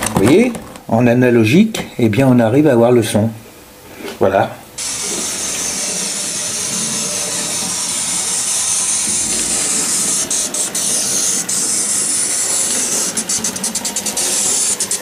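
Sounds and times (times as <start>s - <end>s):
steam hiss from model train: 4.8s - 15.0s.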